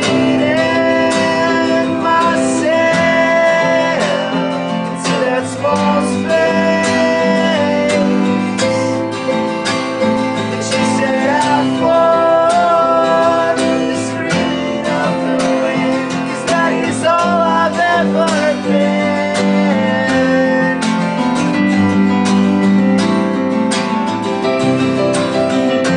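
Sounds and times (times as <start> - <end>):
person singing: 0.0 - 23.5
acoustic guitar strumming: 0.0 - 25.9
electric guitar: 0.0 - 25.9
keyboard: 0.0 - 25.9.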